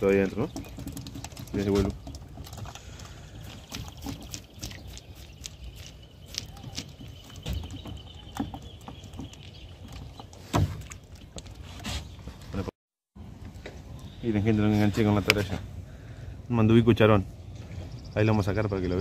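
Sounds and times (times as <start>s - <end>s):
water dripping and splashing: 0.0s - 11.8s.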